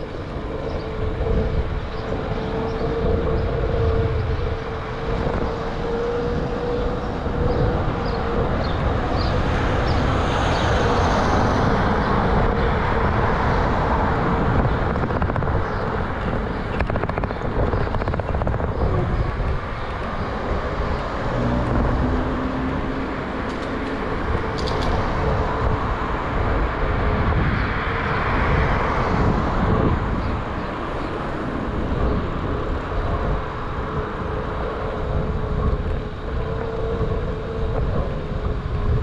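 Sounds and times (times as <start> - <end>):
tyre and road noise: 0.0 - 39.0
wind on microphone: 0.0 - 39.0.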